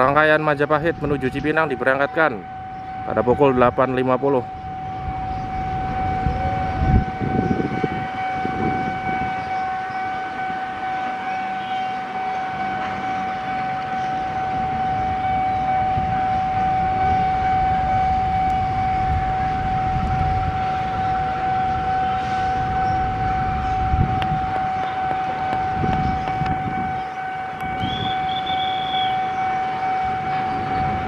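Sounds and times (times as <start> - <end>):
diesel locomotives rumbling: 0.0 - 31.0
high-pitched tone: 18.1 - 31.0.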